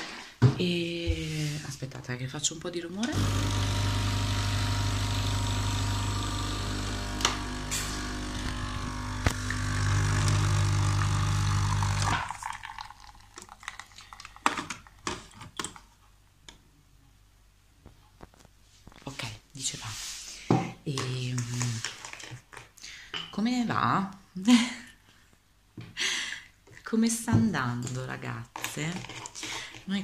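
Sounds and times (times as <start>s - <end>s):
coffee machine pump humming: 3.1s - 12.9s.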